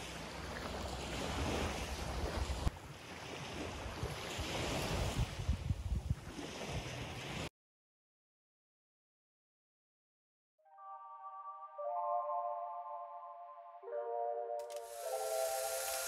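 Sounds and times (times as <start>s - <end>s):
sea waves washing on shore: 0.0s - 7.5s, 14.8s - 16.0s
wind buffeting microphone: 1.1s - 7.4s.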